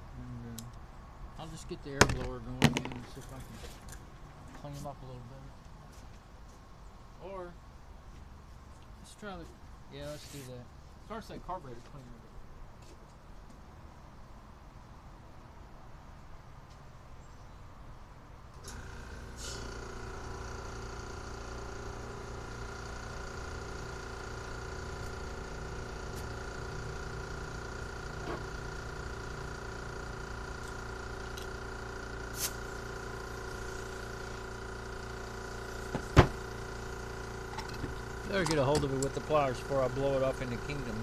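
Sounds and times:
air compressor motor humming: 0:18.6 - 0:41.0.

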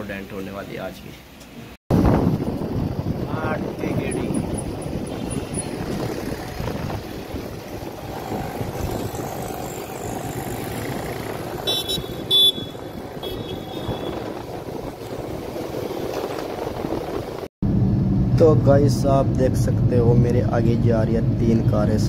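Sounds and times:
motorcycle engine: 0:01.9 - 0:17.5
wind on microphone: 0:01.9 - 0:18.2.

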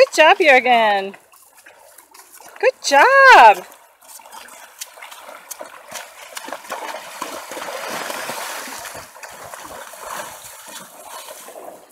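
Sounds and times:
horse splashing through water: 0:00.0 - 0:11.9.

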